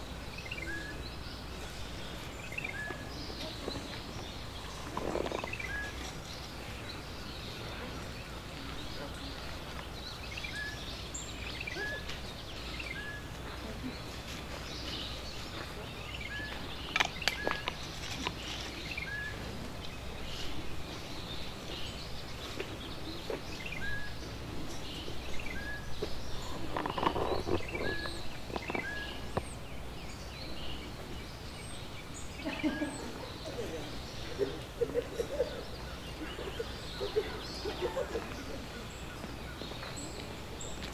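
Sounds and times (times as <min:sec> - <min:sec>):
bird chirping: 0:00.0 - 0:40.9
sharp clicks: 0:16.9 - 0:18.4.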